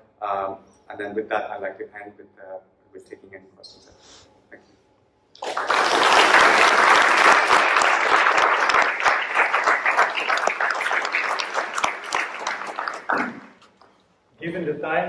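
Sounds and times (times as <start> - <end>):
audience applauding: 5.4 - 13.7.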